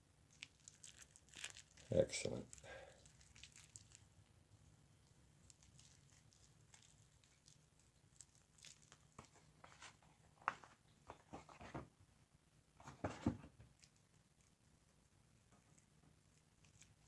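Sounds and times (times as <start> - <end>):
plastic and cardboard rustling: 8.2 - 11.9, 12.8 - 14.1.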